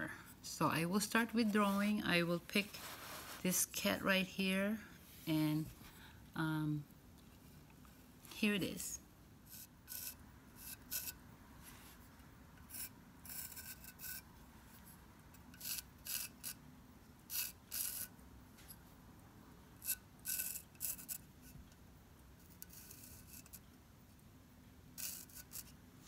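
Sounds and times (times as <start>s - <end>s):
pencil scratching on ceramic: 9.5s - 12.0s, 12.6s - 16.6s, 17.3s - 18.1s, 19.8s - 21.7s, 22.4s - 23.7s, 25.0s - 25.8s.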